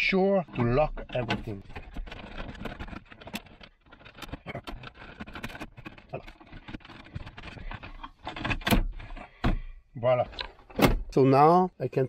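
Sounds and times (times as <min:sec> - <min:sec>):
plastic trim clicks and rattles: 0:00.4 - 0:09.6.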